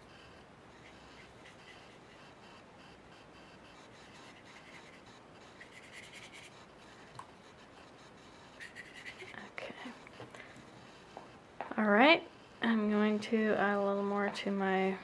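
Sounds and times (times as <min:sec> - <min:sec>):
brush stroking over paper: 0:00.1 - 0:10.2.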